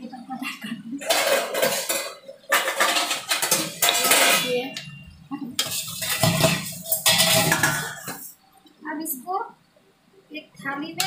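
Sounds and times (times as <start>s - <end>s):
metal spoon scraping iron pan: 1.0s - 4.8s, 5.6s - 8.2s.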